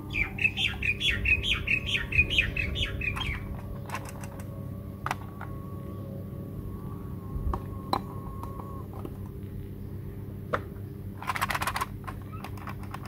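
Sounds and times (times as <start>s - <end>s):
steady low hum: 0.0s - 13.0s
plastic toy pieces clicking: 3.1s - 4.5s, 11.2s - 13.0s.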